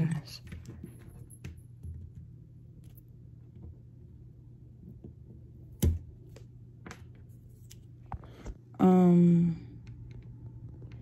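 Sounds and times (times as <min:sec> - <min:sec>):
low steady hum: 0:00.0 - 0:11.0
rustling and handling noise: 0:04.8 - 0:08.7.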